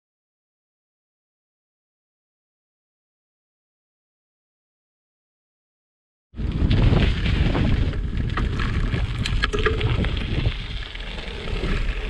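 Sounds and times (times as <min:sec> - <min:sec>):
bicycle road rumble: 0:06.4 - 0:12.0
wind buffeting microphone: 0:06.4 - 0:12.0.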